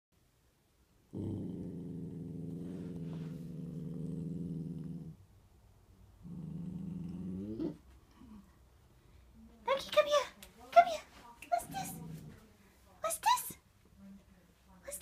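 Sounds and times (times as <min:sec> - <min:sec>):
puppy growling: 0:01.1 - 0:05.2, 0:06.2 - 0:08.4, 0:11.6 - 0:12.4.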